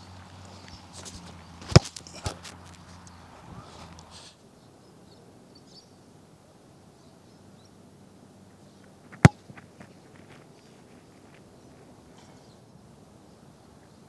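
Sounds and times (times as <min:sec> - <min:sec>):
boot kicking football thump: 0:01.6 - 0:02.4.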